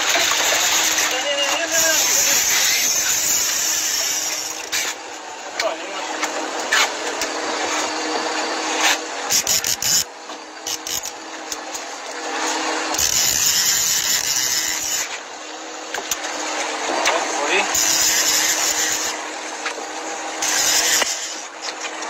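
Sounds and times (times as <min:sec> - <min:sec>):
water noise: 0:00.0 - 0:06.7.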